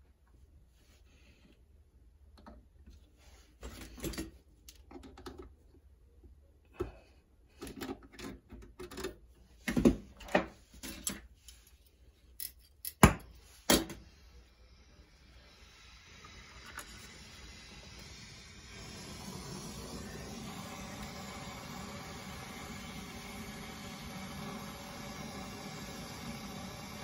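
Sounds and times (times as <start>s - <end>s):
torch flame hissing: 14.2s - 27.0s.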